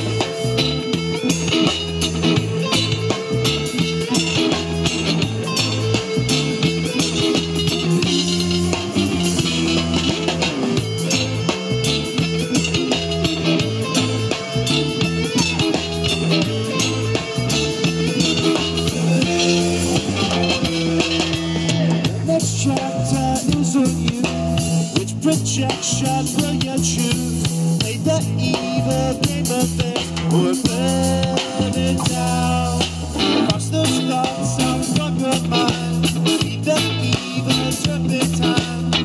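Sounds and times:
electric guitar: 0:00.0 - 0:39.0
rock band playing: 0:00.0 - 0:39.0.

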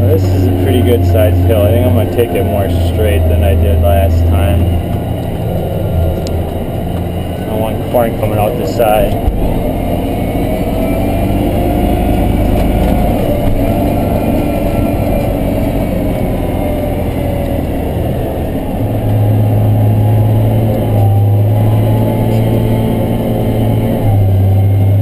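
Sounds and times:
deep strong hum: 0:00.0 - 0:25.0
diesel engine under heavy load: 0:00.0 - 0:25.0.

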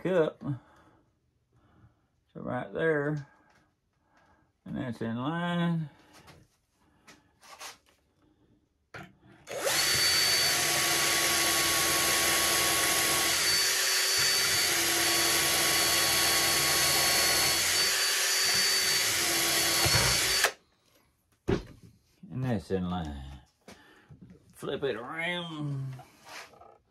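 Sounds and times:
cordless drill boring wood: 0:09.4 - 0:20.6.

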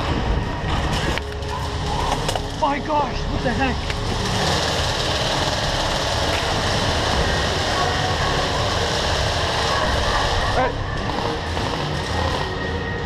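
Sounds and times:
airsoft guns firing full auto: 0:04.1 - 0:10.5.

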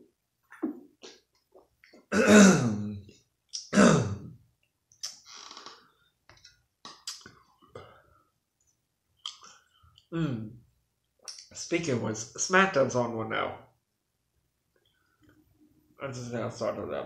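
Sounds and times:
man's rough throat sounds: 0:02.1 - 0:04.4.

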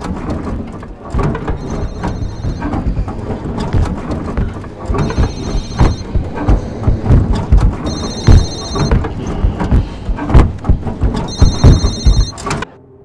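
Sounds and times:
low rumbling and thudding: 0:00.0 - 0:12.4
telephone ringing: 0:07.8 - 0:09.1, 0:11.3 - 0:12.5.

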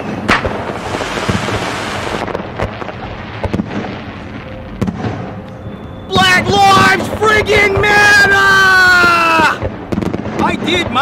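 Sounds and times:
fireworks pops: 0:00.0 - 0:04.0
fireworks crackling hiss: 0:00.0 - 0:11.0.

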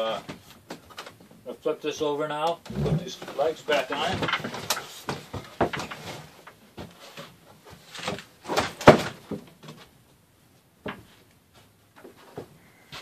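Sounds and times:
wooden knocks and thumps: 0:02.6 - 0:10.0, 0:10.8 - 0:13.0.

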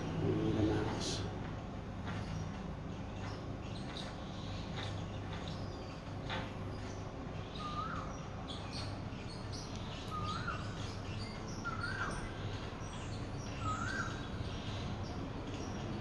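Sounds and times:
owl squeaky calls: 0:07.5 - 0:08.2, 0:10.0 - 0:14.8.

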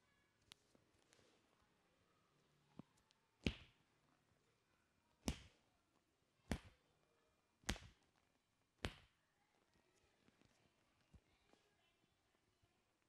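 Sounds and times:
hands smacking skin: 0:05.2 - 0:05.5, 0:06.4 - 0:06.8, 0:07.6 - 0:08.1.

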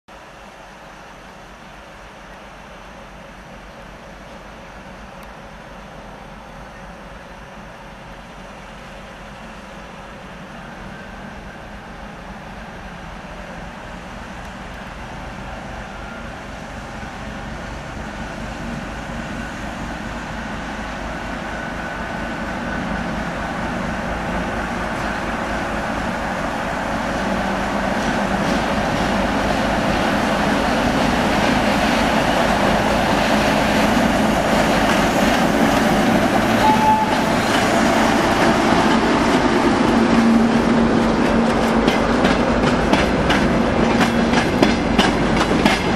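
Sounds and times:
diesel locomotive engine: 0:00.1 - 0:45.9
wheels clicking over rail joints: 0:41.0 - 0:45.9.

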